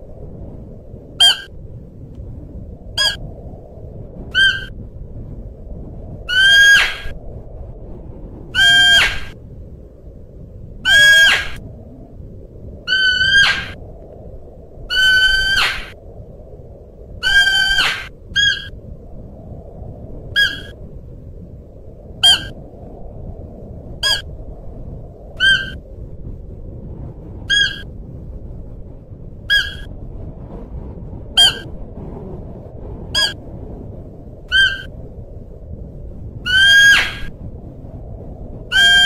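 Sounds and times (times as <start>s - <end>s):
deer calling: 8.6s - 9.2s.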